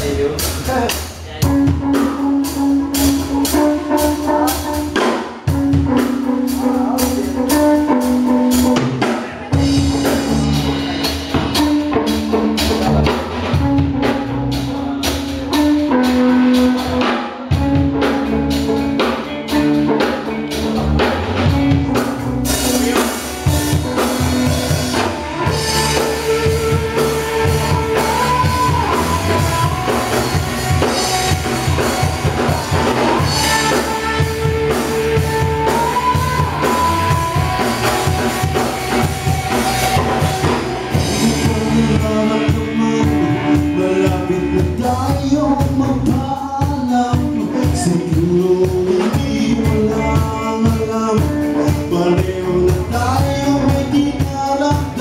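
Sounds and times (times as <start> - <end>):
live rock band playing: 0.0 - 55.0
repeating guitar line: 0.0 - 55.0.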